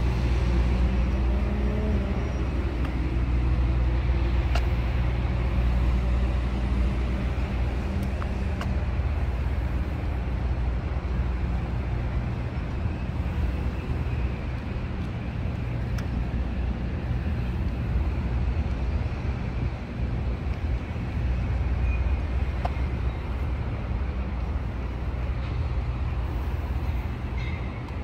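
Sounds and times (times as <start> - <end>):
traffic engine rumble: 0.0 - 28.0
vehicles passing: 0.0 - 28.0.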